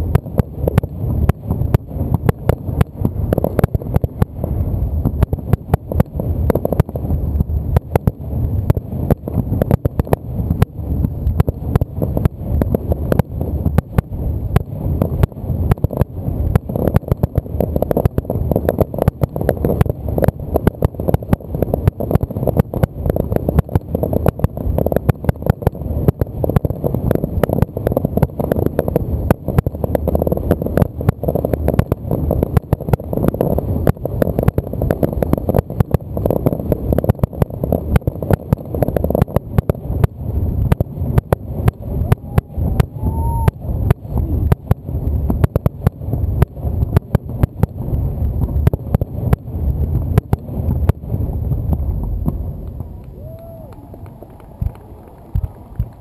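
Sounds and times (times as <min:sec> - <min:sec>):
fireworks booming: 0:00.0 - 0:56.0.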